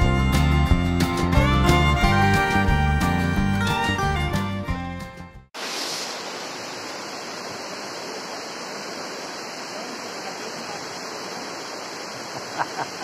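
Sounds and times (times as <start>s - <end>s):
water rushing down rock face: 5.6s - 13.0s.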